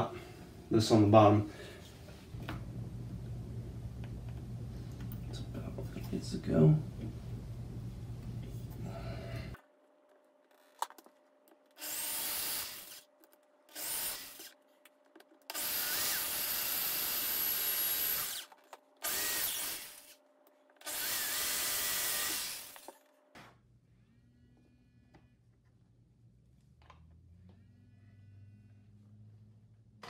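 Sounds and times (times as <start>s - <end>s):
electric drill driving screws: 11.8s - 13.1s, 13.7s - 14.6s, 15.5s - 20.2s, 20.8s - 23.0s.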